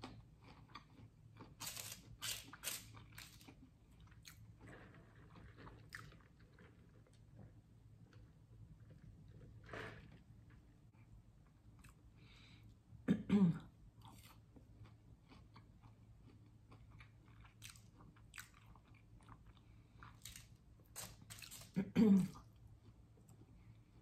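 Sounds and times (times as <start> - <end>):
person chewing crispy food: 0.0 - 7.2, 14.0 - 24.0.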